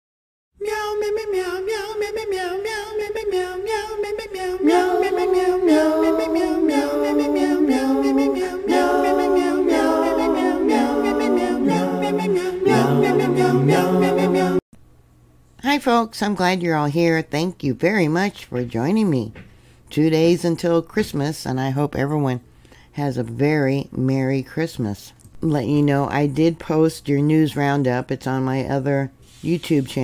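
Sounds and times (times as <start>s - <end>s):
choir singing a cappella: 0.6s - 14.6s.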